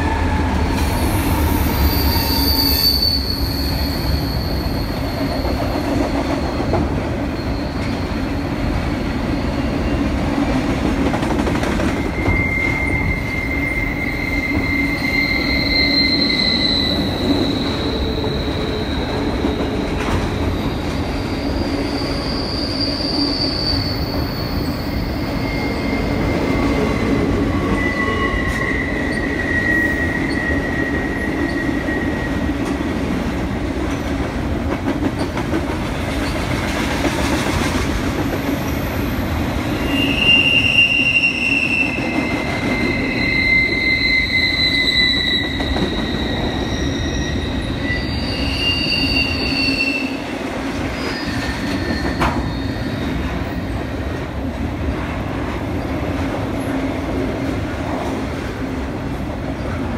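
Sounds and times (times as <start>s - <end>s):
high-pitched wheel squeal: 0.0s - 10.1s, 11.9s - 32.6s, 39.7s - 53.8s
freight train wheels rumbling on rail: 0.0s - 59.9s.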